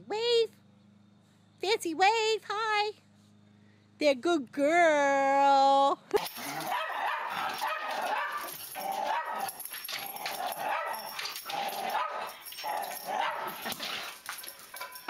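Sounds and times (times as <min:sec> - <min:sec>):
small dogs barking and yipping: 0:06.2 - 0:15.0.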